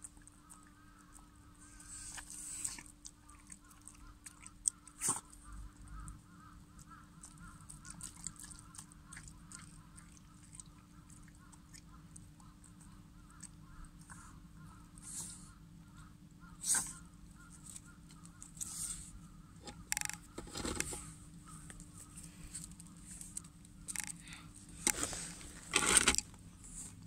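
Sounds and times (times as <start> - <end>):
faint bird calls: 5.3 - 25.4
puppy licking and smacking: 7.2 - 12.8.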